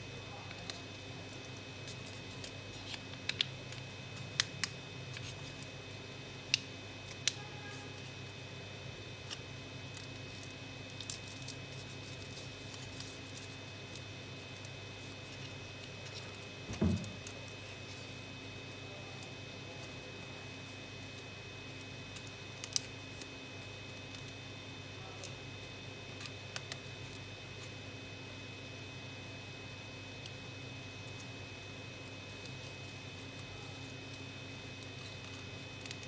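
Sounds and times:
steady background hum: 0.0s - 36.0s
paper crinkling: 0.5s - 5.8s, 9.2s - 24.4s, 32.0s - 36.0s
low thump: 16.7s - 17.2s.

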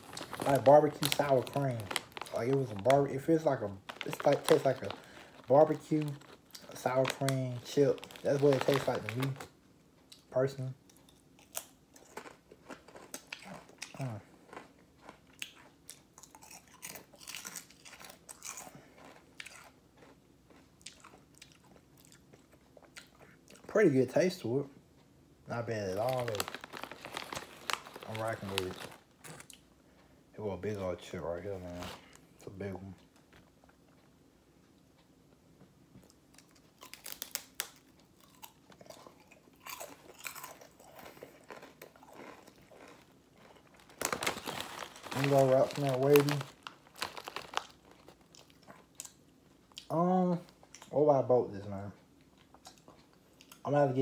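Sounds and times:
potato chips crunching: 0.0s - 9.5s, 10.9s - 23.2s, 25.8s - 29.6s, 36.4s - 49.9s.

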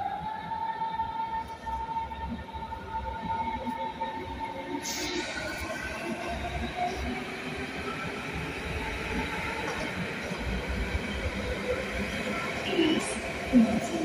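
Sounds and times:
train wheels rumbling on rails: 3.2s - 14.0s.

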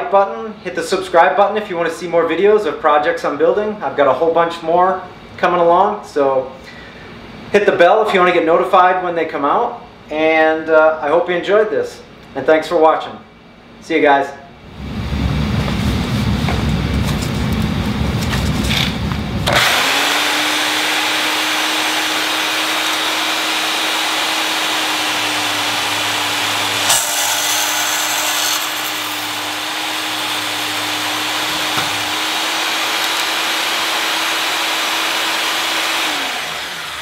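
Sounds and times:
band saw cutting metal tubing: 18.7s - 37.0s
saw motor winding down: 18.7s - 37.0s.

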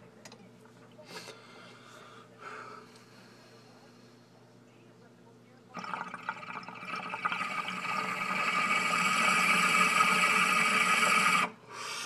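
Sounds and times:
water bubbling in glass pipe: 5.8s - 11.6s.

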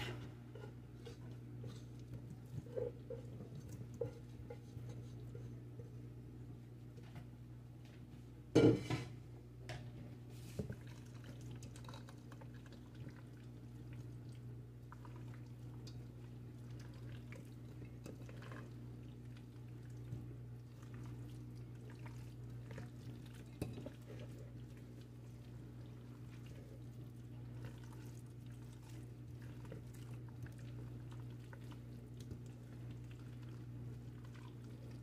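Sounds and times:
spatula squishing potatoes: 10.3s - 35.0s.

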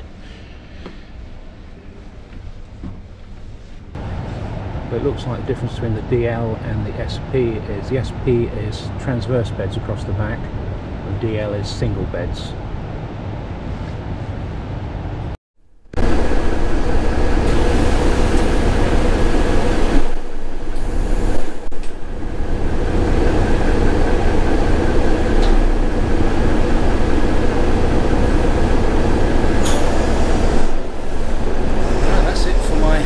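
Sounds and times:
bus engine running: 16.0s - 33.0s.

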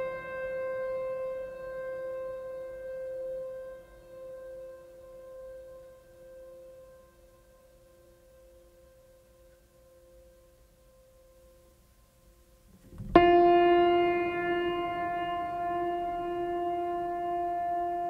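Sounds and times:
loud sustained note: 12.9s - 18.0s.

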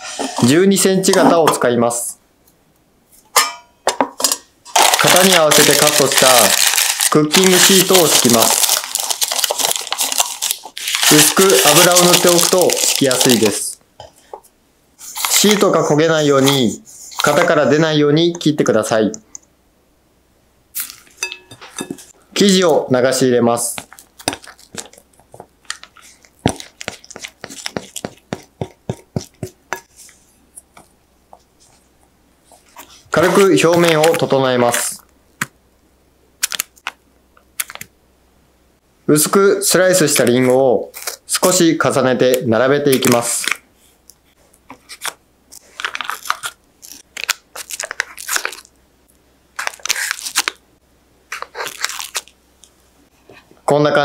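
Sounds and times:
apple slices rustling on parchment: 4.7s - 13.7s, 23.6s - 28.5s.

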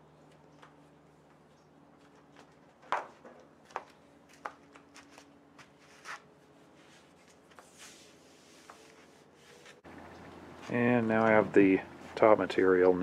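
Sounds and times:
vinyl sheet rustling: 4.7s - 9.9s.

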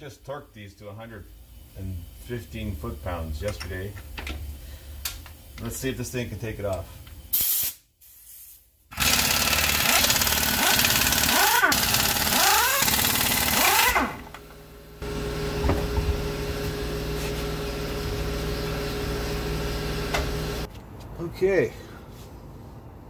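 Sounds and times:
impact wrench hammering: 8.9s - 14.5s
quiet motor hum: 12.8s - 21.2s.

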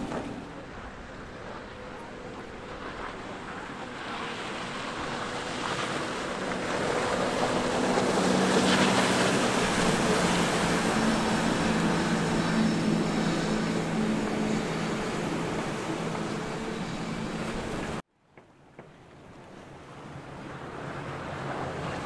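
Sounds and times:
outboard engines drone: 0.0s - 18.0s, 18.8s - 22.0s
rush of boat wake: 0.0s - 18.0s, 19.0s - 22.0s.

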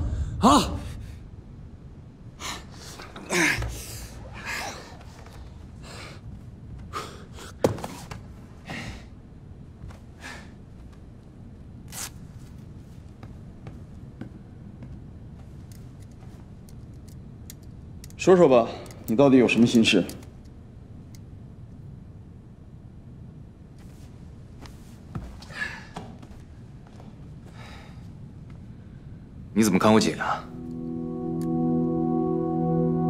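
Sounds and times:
men breathing hard: 27.4s - 28.2s.

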